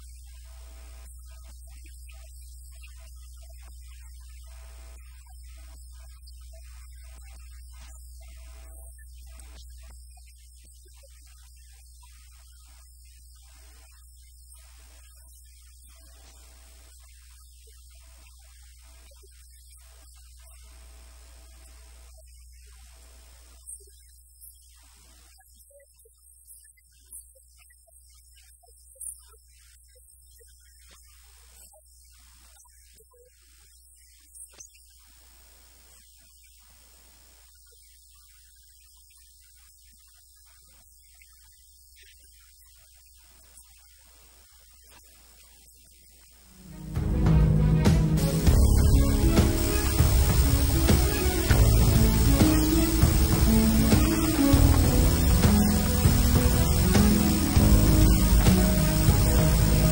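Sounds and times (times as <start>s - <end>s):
faint mains hum: 0.0s - 59.9s
thin high whine: 46.4s - 59.9s.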